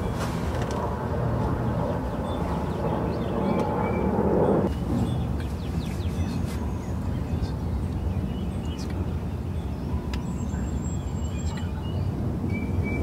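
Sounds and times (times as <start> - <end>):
steady low rumble: 0.0 - 13.0
bird chirps: 2.1 - 13.0.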